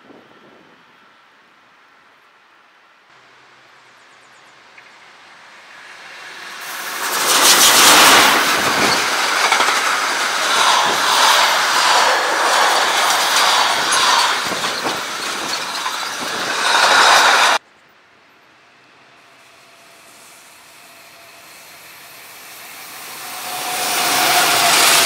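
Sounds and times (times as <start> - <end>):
freight train passing: 3.2 - 25.0
wheels clattering on rails: 5.8 - 17.6.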